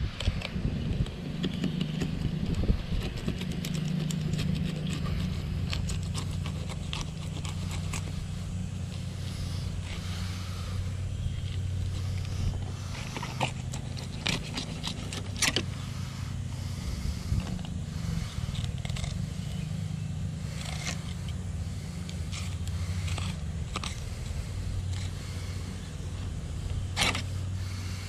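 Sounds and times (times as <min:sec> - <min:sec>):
low hum: 0:00.0 - 0:28.0
knife scraping fish scales: 0:01.3 - 0:08.4.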